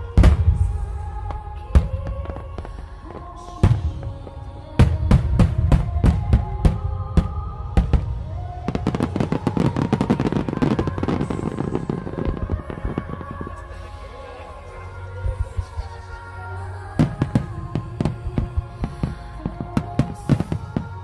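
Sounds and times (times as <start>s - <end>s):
firework crackle: 0.0s - 14.7s, 17.0s - 21.0s
background music: 0.0s - 21.0s
firework bangs: 3.6s - 13.7s.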